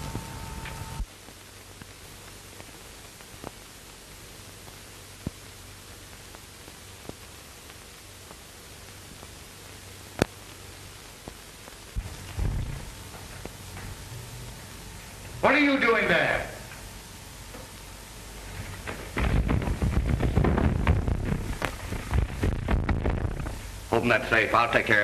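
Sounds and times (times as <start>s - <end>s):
crackling clicks: 0.0s - 15.4s, 16.6s - 25.0s
film soundtrack hiss: 0.0s - 25.0s
low rumble: 12.0s - 15.4s, 19.2s - 24.0s.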